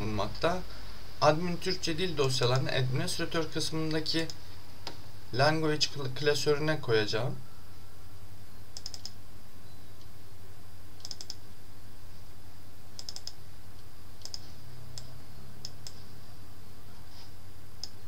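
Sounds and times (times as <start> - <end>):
low electrical hum: 0.0 - 18.0
computer mouse clicking: 8.8 - 9.2, 11.0 - 11.4, 13.0 - 13.4, 14.2 - 16.0, 17.8 - 18.0.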